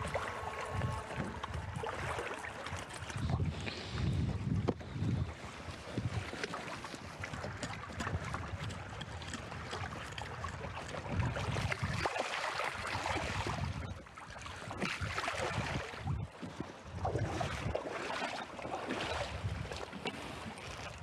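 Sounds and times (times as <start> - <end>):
wind on microphone: 0.0 - 18.0, 18.6 - 21.0.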